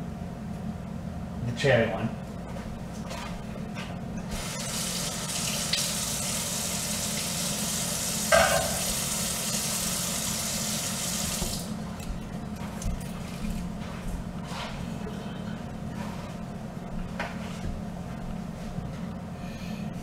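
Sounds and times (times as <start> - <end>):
tap water running into sink: 4.4 - 11.7.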